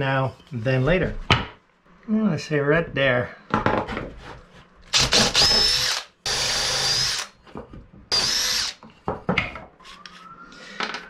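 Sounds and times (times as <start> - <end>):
cordless drill boring through wood: 4.9 - 7.3, 8.1 - 8.8.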